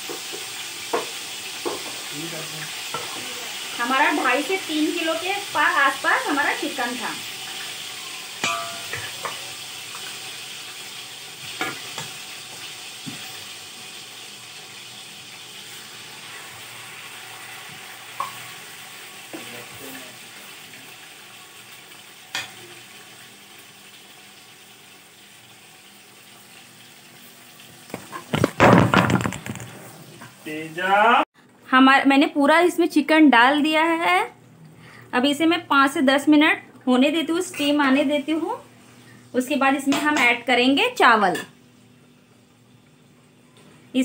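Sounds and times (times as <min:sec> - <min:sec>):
chicken sizzling in oil: 0:00.0 - 0:28.4, 0:30.2 - 0:31.2
knocking and rubbing: 0:28.0 - 0:29.9.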